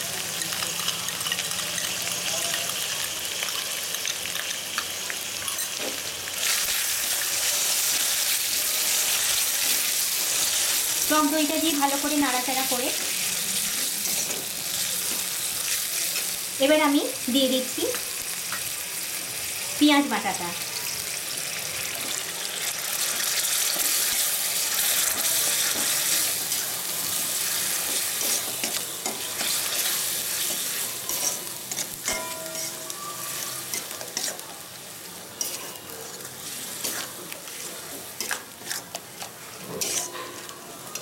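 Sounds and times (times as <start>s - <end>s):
onion paste sizzling in hot oil: 0.0s - 41.0s
metal spatula scraping pan: 28.1s - 34.4s, 39.6s - 40.5s.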